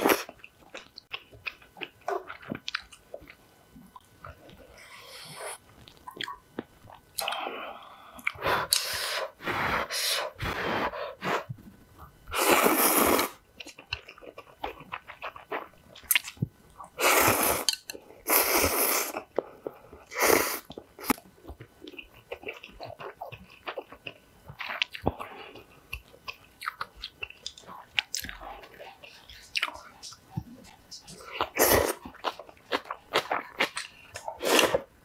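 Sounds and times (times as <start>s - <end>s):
chewing and wet mouth sounds: 0.0s - 4.8s, 5.8s - 7.5s, 13.5s - 34.8s
person slurping noodles: 12.3s - 13.4s, 17.0s - 19.2s, 34.3s - 34.9s.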